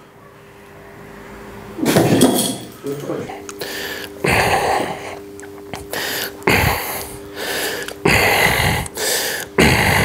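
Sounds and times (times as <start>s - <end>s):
man breathing forcefully: 3.6s - 5.2s, 5.8s - 10.0s.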